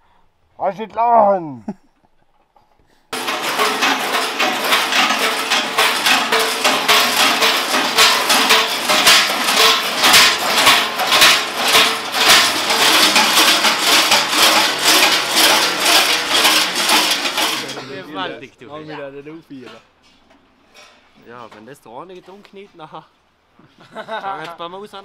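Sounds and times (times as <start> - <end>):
large bells clanging: 3.2 - 18.4.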